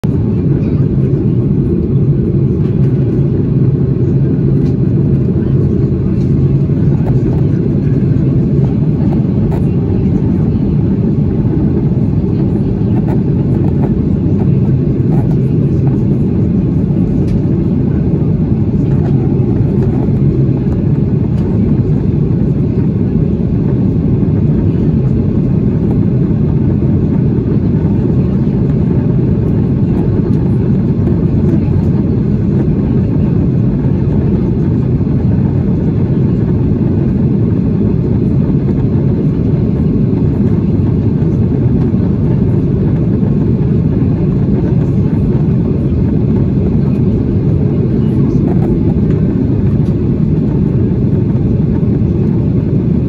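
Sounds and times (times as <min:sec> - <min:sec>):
jet engine drone: 0:00.0 - 0:53.0.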